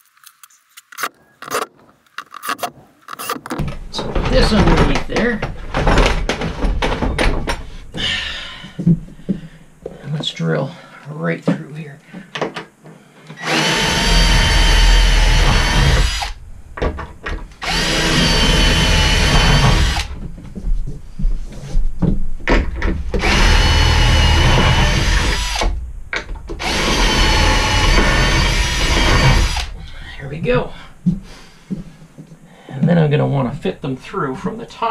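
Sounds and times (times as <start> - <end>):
cordless drill boring through wood: 13.4 - 16.4, 17.6 - 20.1, 23.2 - 25.8, 26.6 - 29.7.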